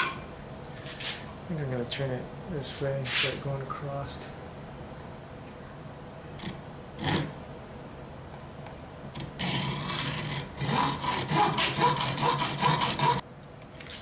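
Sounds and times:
hacksaw cutting plastic: 0:09.1 - 0:13.2.

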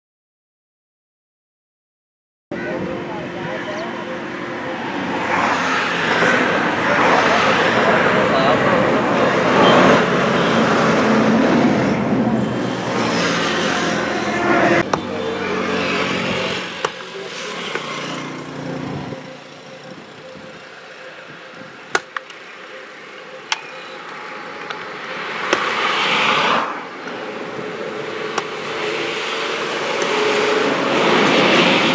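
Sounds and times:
engine hum: 0:02.5 - 0:31.9
truck diesel engine: 0:02.6 - 0:31.9
car passing with tyre hiss: 0:25.2 - 0:31.9.

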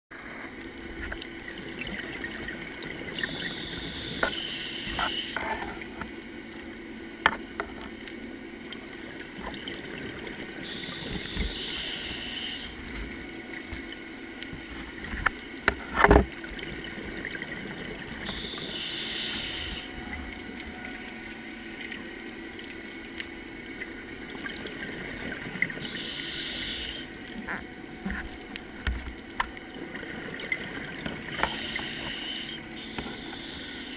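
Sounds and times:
steady low hum: 0:00.2 - 0:33.9
diver breathing through regulator: 0:03.3 - 0:05.8, 0:10.6 - 0:12.9, 0:18.2 - 0:20.0, 0:25.8 - 0:27.2, 0:31.3 - 0:33.9.

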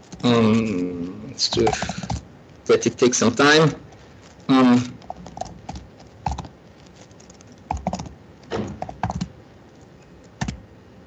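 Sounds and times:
typing on computer keyboard: 0:01.5 - 0:02.2, 0:04.9 - 0:09.3, 0:10.2 - 0:10.6.

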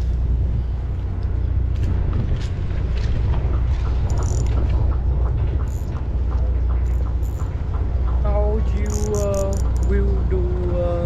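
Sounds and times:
wind rumbling on microphone: 0:00.0 - 0:11.0
faint regular ticking: 0:03.5 - 0:10.8.

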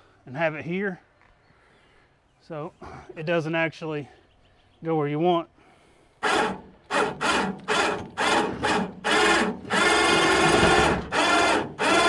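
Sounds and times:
electric winch running: 0:06.2 - 0:12.0.

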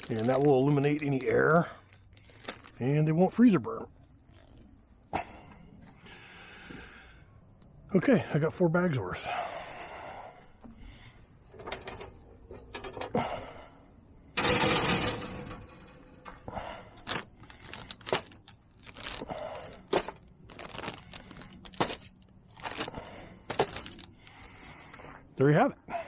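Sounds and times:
plastic bags crinkling: 0:00.0 - 0:04.7, 0:17.0 - 0:24.5
wire rack scraping metal pan: 0:14.4 - 0:16.4.

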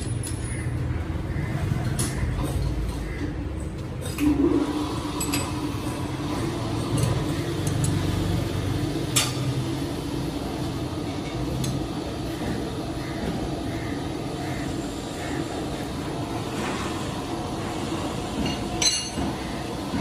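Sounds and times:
steady machine hum: 0:00.0 - 0:20.0
steel tools clinking: 0:18.4 - 0:19.2.

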